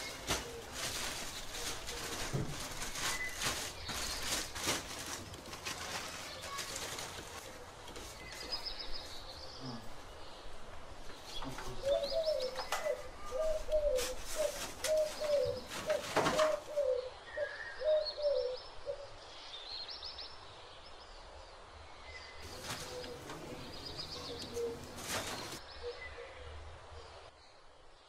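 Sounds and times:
paper and plastic bag rustling: 0.0s - 9.3s, 11.2s - 16.8s, 22.4s - 25.6s.

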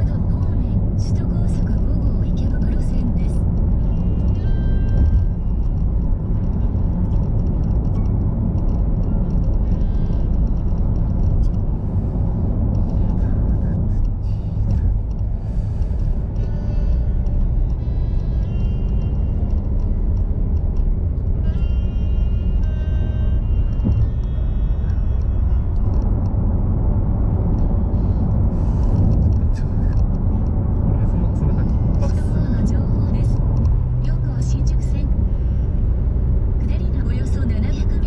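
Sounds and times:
car road and engine rumble: 0.0s - 38.0s
quiet music: 0.0s - 38.0s.

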